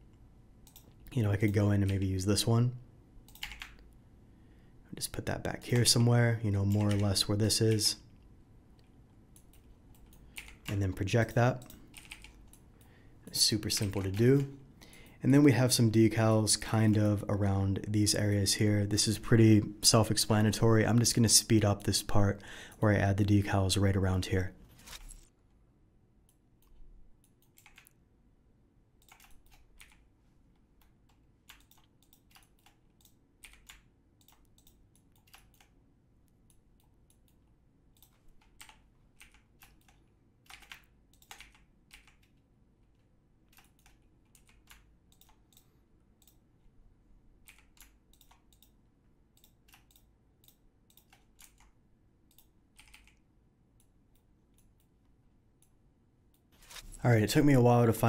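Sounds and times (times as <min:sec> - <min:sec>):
low room hum: 0:00.0 - 0:58.0
keyboard and mouse clicking: 0:00.6 - 0:02.1, 0:03.3 - 0:03.8, 0:05.6 - 0:07.8, 0:08.8 - 0:12.9, 0:13.6 - 0:15.0, 0:26.3 - 0:28.0, 0:29.0 - 0:30.1, 0:30.8 - 0:46.4, 0:47.4 - 0:48.8, 0:49.4 - 0:54.9.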